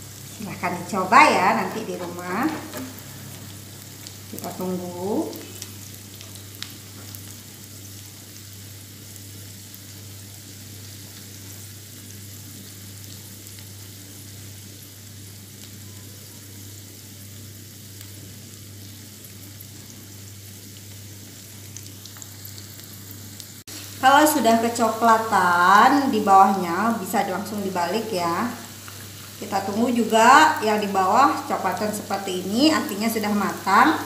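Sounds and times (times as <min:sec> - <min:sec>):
omelette sizzling in oil: 0:00.0 - 0:34.0.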